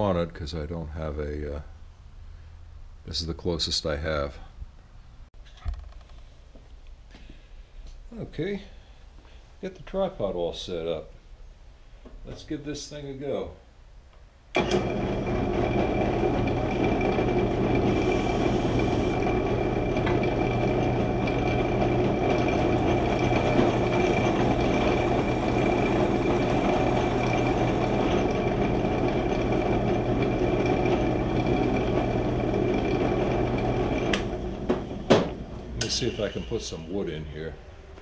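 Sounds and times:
drill press motor humming: 14.6s - 36.9s
thin high whine: 17.8s - 19.3s, 35.6s - 38.0s.

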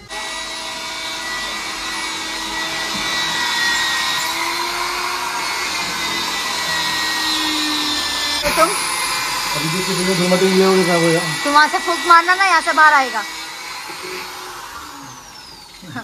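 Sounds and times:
electric motor whirring: 0.0s - 16.0s.

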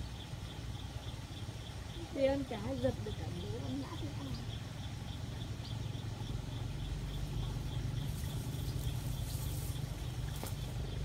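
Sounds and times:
low engine hum: 0.0s - 11.0s.

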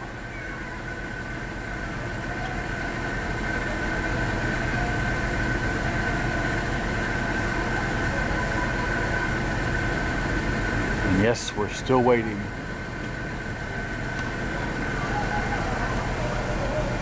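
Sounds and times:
car engine idling: 0.0s - 17.0s
ventilation fan whine: 0.0s - 17.0s.

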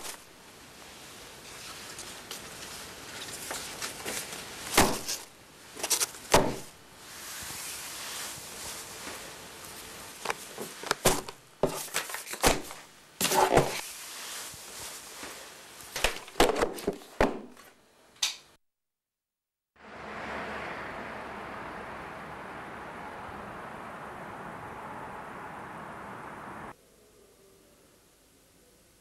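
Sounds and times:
tissue paper and fabric rustling: 0.0s - 17.1s.

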